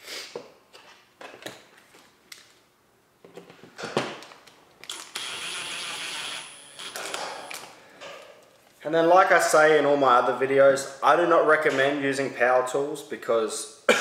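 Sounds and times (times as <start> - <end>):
electric screwdriver running: 4.9 - 7.7.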